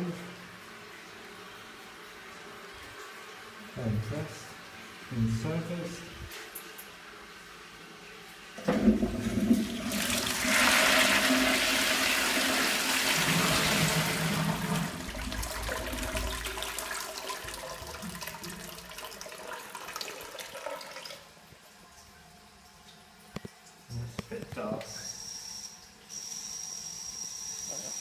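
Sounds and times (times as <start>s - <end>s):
toilet flush lever clunks: 8.6s - 9.9s
water rushing into toilet pan: 8.6s - 21.3s.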